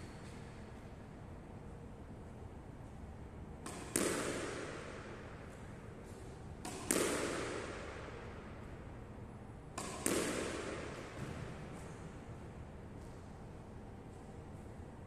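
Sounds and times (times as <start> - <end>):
ball hitting wall: 3.6 - 5.2, 6.6 - 8.2, 9.8 - 11.9
racket striking squash ball: 3.6 - 8.6, 9.7 - 12.2.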